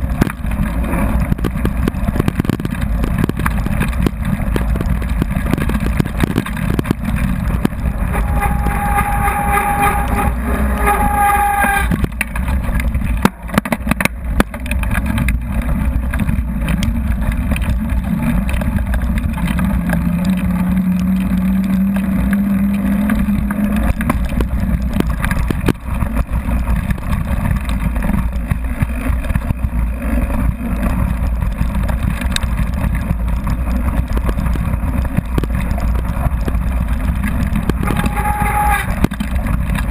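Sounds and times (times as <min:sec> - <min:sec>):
wind buffeting microphone: 0:00.0 - 0:22.2, 0:23.2 - 0:39.9
bike rattles and clicks: 0:00.0 - 0:39.9
bike tyres on loose gravel: 0:00.0 - 0:39.9
short high-pitched squeals: 0:08.0 - 0:12.0, 0:37.8 - 0:39.0.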